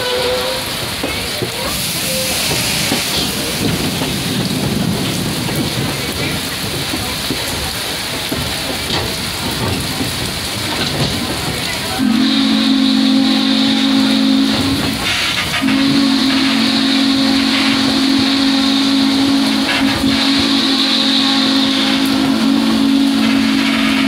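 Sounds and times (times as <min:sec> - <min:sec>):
steam locomotive whistle: 0:00.0 - 0:00.8, 0:11.9 - 0:24.0
heavy rain on train roof: 0:00.0 - 0:24.0.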